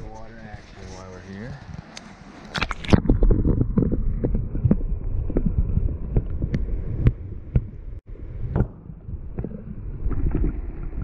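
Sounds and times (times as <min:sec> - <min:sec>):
muffled underwater rushing: 0:02.4 - 0:11.0.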